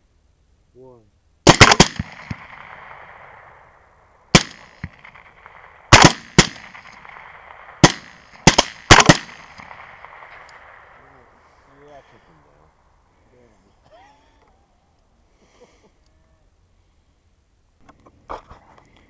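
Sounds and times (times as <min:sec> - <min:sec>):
rifle shots with echo: 0:01.4 - 0:11.7.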